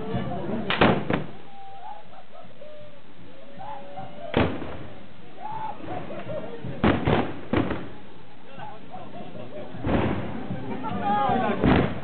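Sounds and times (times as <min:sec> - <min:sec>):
crowd voices: 0:00.0 - 0:12.0
loud musket shot: 0:00.7 - 0:01.3, 0:04.3 - 0:04.9, 0:06.8 - 0:07.9.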